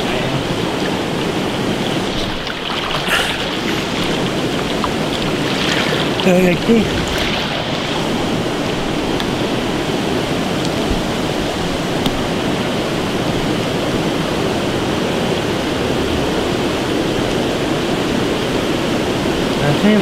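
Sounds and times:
river rushing over rapids: 0.0 - 20.0.

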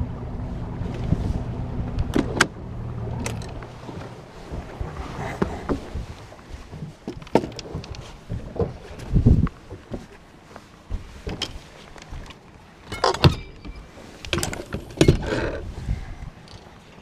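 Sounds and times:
knocks and thumps on boat deck: 3.3 - 12.3
gear clattering: 11.3 - 15.7.

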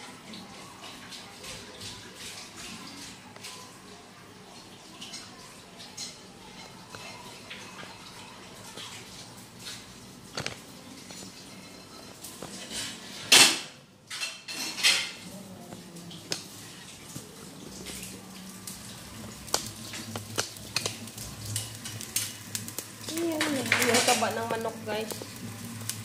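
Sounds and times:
metal kitchenware clattering: 10.4 - 15.3, 23.4 - 24.6.

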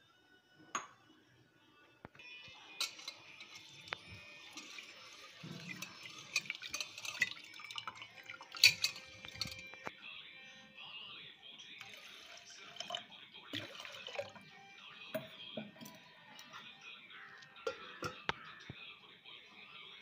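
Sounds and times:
water sloshing in metal pot: 2.8 - 9.8, 11.8 - 14.5, 17.7 - 18.3.

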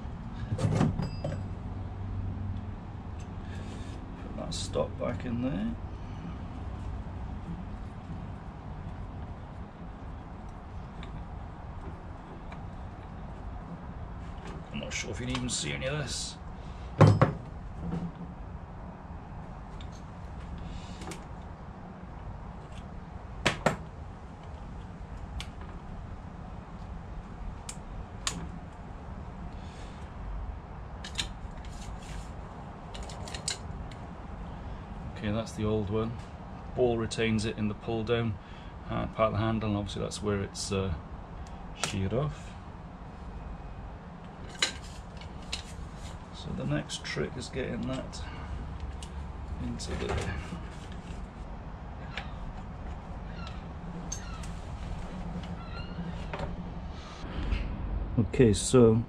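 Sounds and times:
low steady hum: 0.0 - 59.0
metal clicks and scrapes of handle: 32.9 - 33.7
high-pitched animal calls: 55.6 - 56.2.

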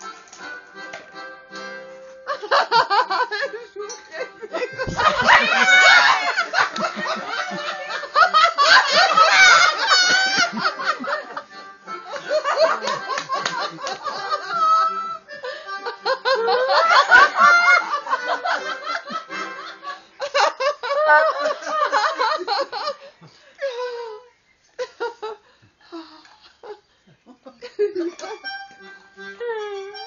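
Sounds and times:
audience laughing: 2.3 - 23.0.

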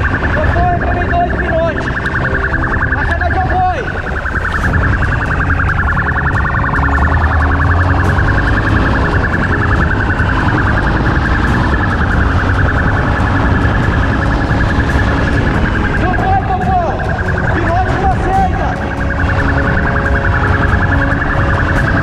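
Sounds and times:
motorcycle engine running: 0.0 - 22.0
police siren warbling: 0.0 - 22.0.

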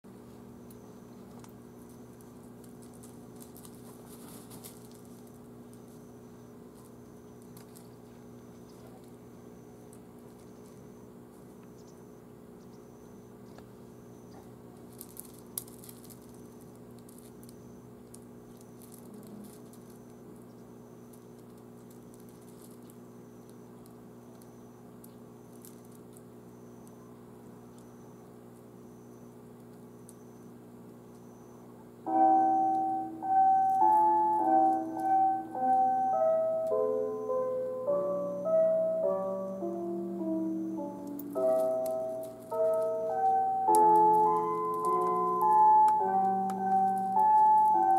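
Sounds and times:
steady low hum: 0.1 - 47.9
crows pecking and stepping on gravel: 0.2 - 28.8, 40.7 - 47.9.

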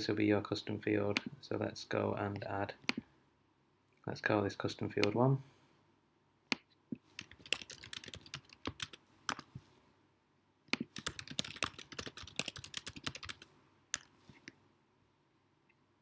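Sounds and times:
computer keyboard typing: 7.1 - 9.5, 10.8 - 14.1.

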